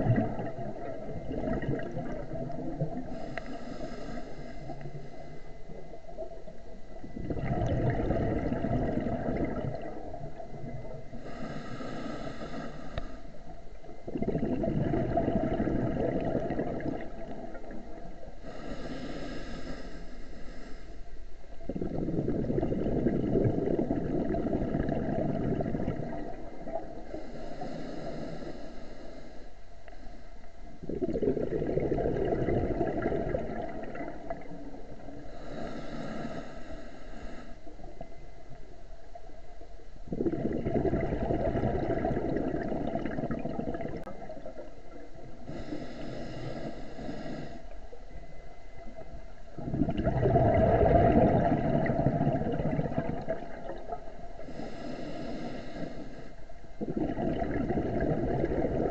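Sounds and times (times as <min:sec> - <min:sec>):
rush of exhaled bubbles: 0:00.0 - 0:05.1, 0:07.1 - 0:13.2, 0:13.8 - 0:19.7, 0:21.6 - 0:27.2, 0:30.8 - 0:36.3, 0:40.1 - 0:47.5, 0:49.0 - 0:56.0, 0:56.8 - 0:58.9
hissing regulator inhale: 0:02.9 - 0:05.7, 0:11.1 - 0:13.9, 0:18.4 - 0:22.1, 0:26.7 - 0:30.5, 0:35.2 - 0:37.9, 0:45.4 - 0:49.1, 0:54.4 - 0:57.0.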